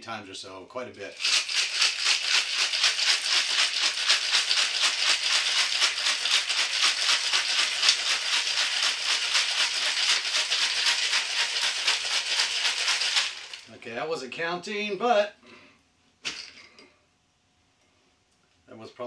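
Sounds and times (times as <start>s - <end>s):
ice rattling in cocktail shaker: 1.1s - 13.7s.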